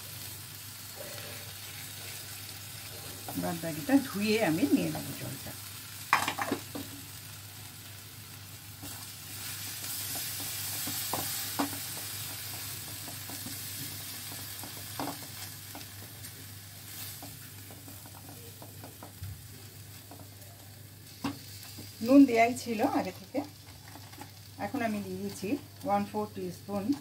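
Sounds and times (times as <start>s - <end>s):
paste sizzling in a frying pan: 0.0s - 27.0s
spatula knocking on pan: 10.1s - 16.0s.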